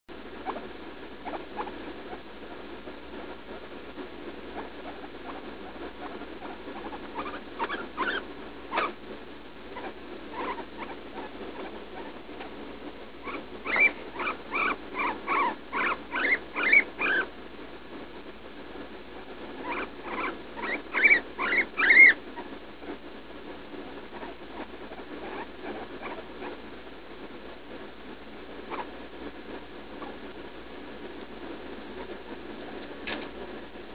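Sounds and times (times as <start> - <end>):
guinea pig squeaking: 0.4 - 2.2, 4.5 - 9.0, 9.7 - 12.6, 13.2 - 17.3, 19.6 - 22.6, 24.0 - 26.6, 28.6 - 29.0, 29.9 - 30.2.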